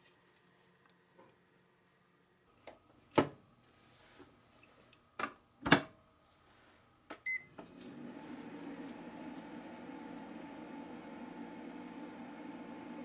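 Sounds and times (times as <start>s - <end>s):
rice cooker humming: 7.3s - 13.0s.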